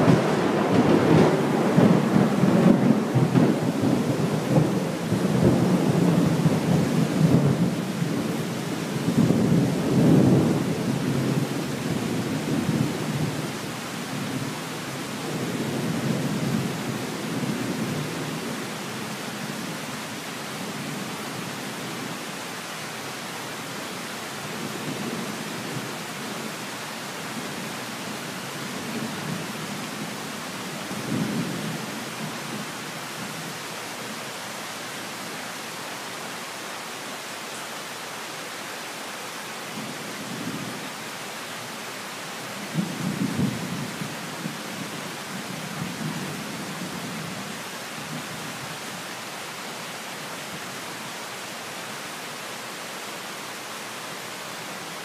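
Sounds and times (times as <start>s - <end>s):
thunder rumbling: 0.0s - 8.3s
heavy rain: 0.0s - 55.0s.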